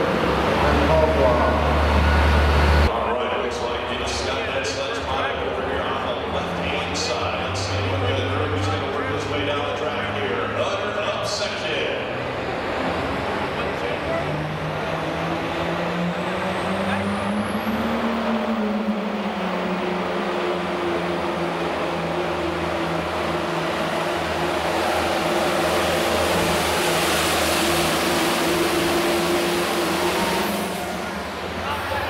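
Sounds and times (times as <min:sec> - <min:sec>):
tractor diesel engine revving: 0:00.0 - 0:32.0
rushing noise: 0:11.4 - 0:32.0.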